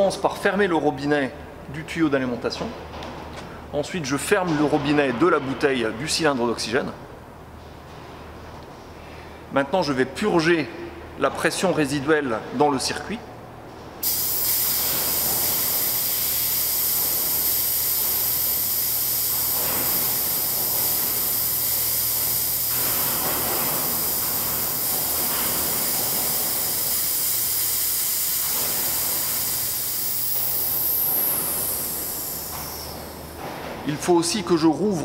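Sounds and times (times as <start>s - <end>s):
oxygen hissing from valve: 14.0s - 33.4s.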